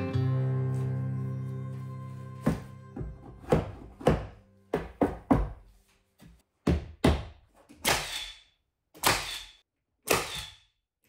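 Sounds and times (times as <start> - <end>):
hammer knocking wooden boards: 2.5 - 5.6, 6.6 - 7.4
nail gun firing into wood: 7.8 - 8.4, 9.0 - 10.6.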